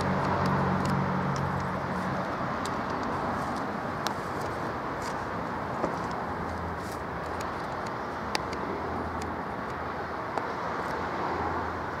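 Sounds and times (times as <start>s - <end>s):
tyre noise on asphalt: 0.0s - 9.2s.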